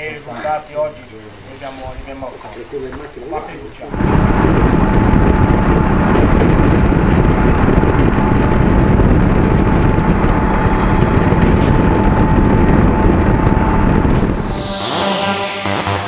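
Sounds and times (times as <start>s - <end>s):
wind rush over microphone: 1.9s - 15.8s
motorcycle engine and road noise: 3.9s - 16.0s
electronic music: 14.2s - 16.0s.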